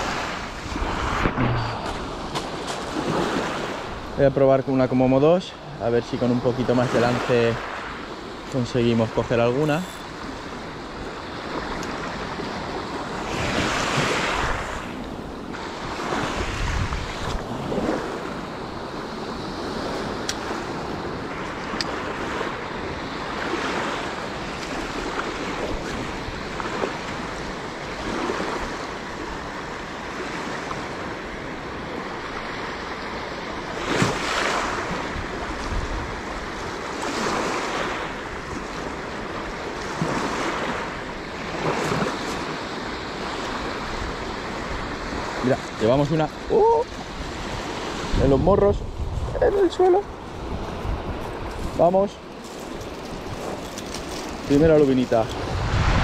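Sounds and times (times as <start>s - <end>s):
waves breaking on pebbles: 0.0s - 4.0s, 33.7s - 46.4s, 49.8s - 56.0s
wind buffeting microphone: 0.0s - 4.3s, 5.6s - 56.0s.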